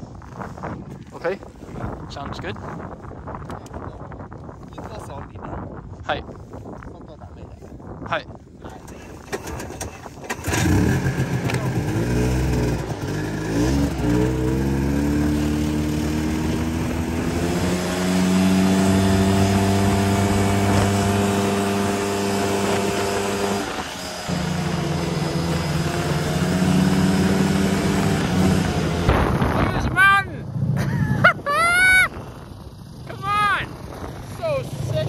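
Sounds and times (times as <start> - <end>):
snowmobile engine under throttle: 8.8 - 29.9, 30.5 - 35.0.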